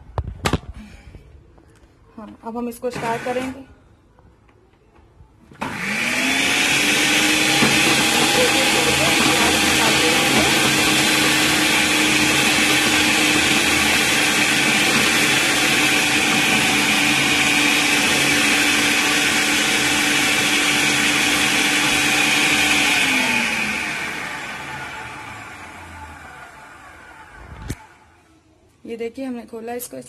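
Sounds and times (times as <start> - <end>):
food processor running: 3.0 - 3.6, 5.6 - 28.1.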